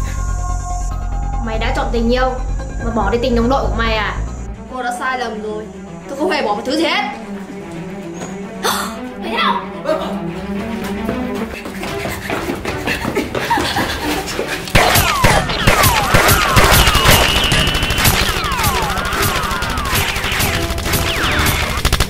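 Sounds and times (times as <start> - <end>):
background music: 0.0 - 22.0
rapid gunfire: 14.8 - 22.0
whistling glides: 16.0 - 21.5.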